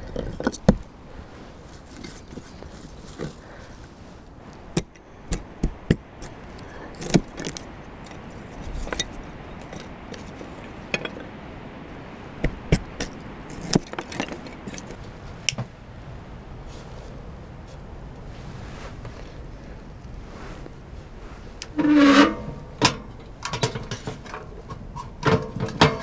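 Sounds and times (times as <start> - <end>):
wood shavings rustling: 1.2 - 4.7.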